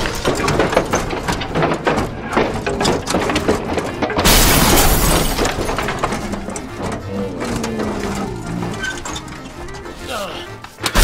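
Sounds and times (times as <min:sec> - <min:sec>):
plastic toy crashing over: 0:00.0 - 0:07.0.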